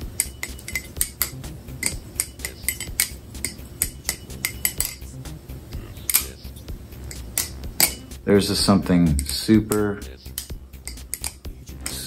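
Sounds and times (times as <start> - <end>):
butterfly knife metallic clicks: 0.0 - 5.2, 6.0 - 6.4, 7.0 - 8.2, 9.1 - 12.0.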